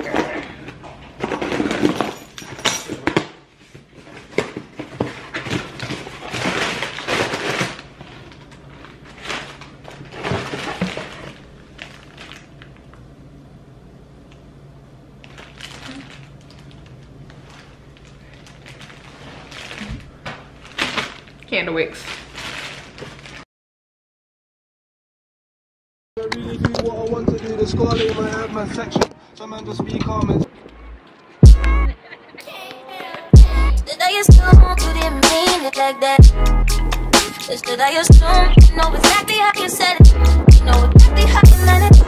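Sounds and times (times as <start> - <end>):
plastic bag crinkling: 4.0 - 13.0, 15.2 - 23.5.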